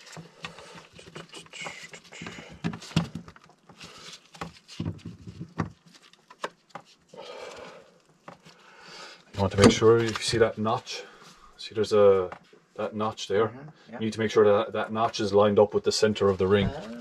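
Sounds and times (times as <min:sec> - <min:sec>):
small clicks taps and rustles: 0:00.0 - 0:07.1.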